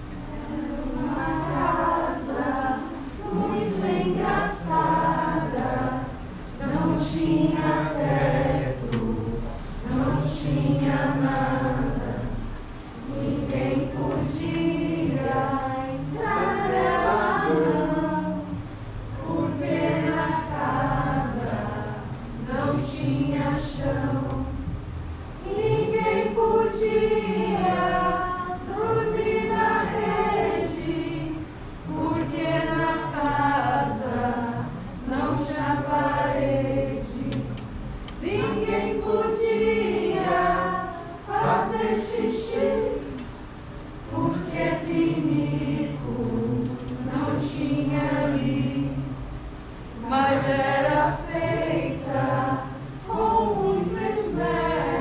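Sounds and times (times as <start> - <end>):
choir singing long held notes: 0.0 - 24.8, 25.4 - 55.0.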